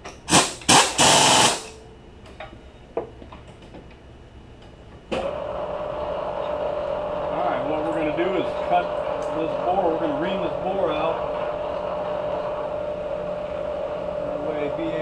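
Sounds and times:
mill spindle humming: 5.1s - 15.0s.

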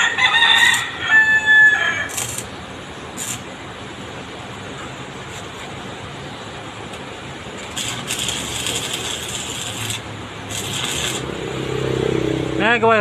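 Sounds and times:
welding arc crackling: 1.8s - 3.6s, 7.5s - 11.6s.

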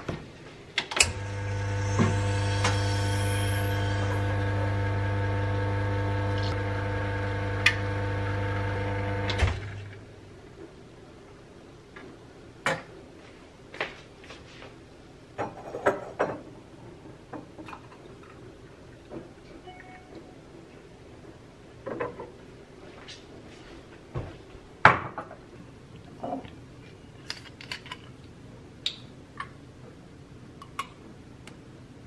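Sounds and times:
espresso machine pump humming: 1.1s - 9.9s.

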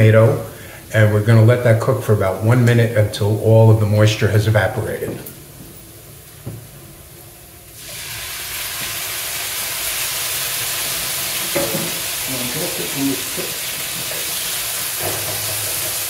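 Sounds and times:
vegetables sizzling in oil: 7.6s - 16.0s.

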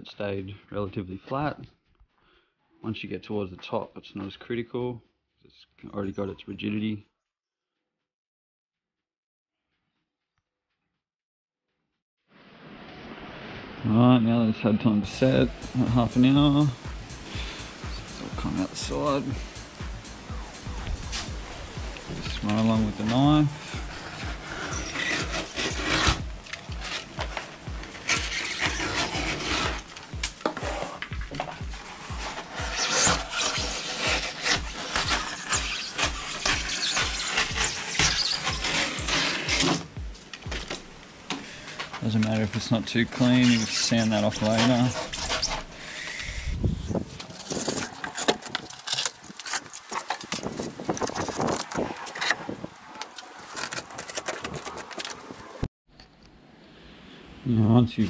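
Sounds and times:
background music with steady beat: 15.0s - 42.0s
utility knife scraping glue: 21.9s - 39.9s, 43.1s - 45.7s, 47.1s - 55.4s.

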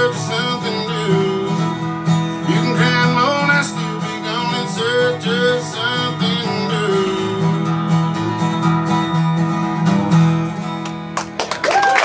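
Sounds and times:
acoustic guitar playing: 0.0s - 11.6s
audience applause: 11.1s - 12.0s.

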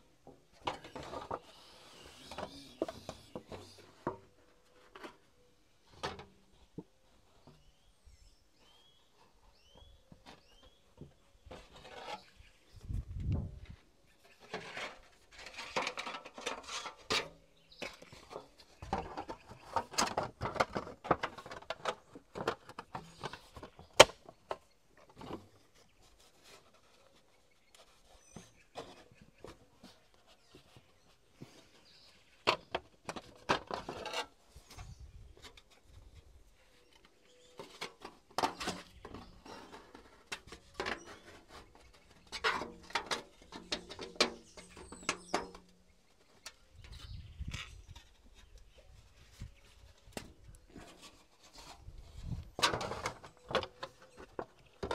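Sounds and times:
metal sheet rattling and crinkling: 14.4s - 24.1s, 37.6s - 45.7s, 48.9s - 54.9s.

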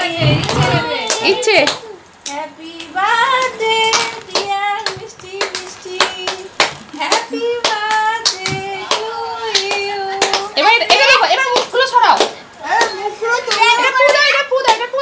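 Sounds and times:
hands clapping in rhythm: 3.9s - 14.9s.

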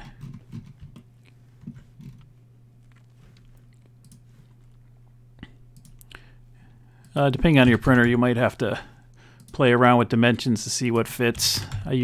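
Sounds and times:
steady low hum: 0.0s - 12.0s
computer mouse clicks: 4.0s - 4.2s, 5.8s - 6.1s.

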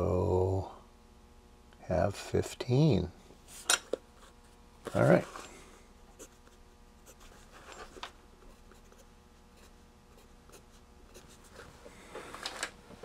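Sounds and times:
pencil scratching on paper: 6.1s - 11.5s.

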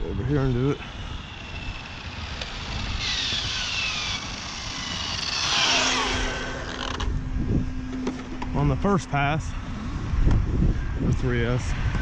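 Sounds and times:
electric motor whining: 0.1s - 7.3s.

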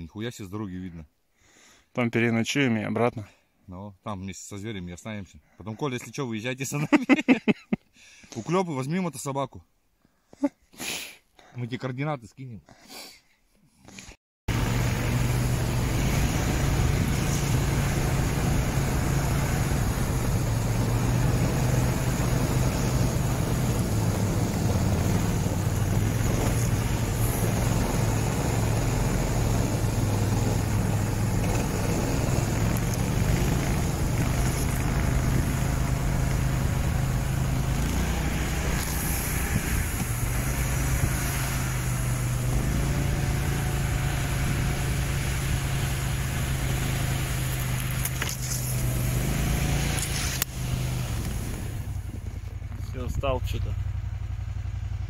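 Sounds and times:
snow tug engine running: 14.5s - 55.0s.

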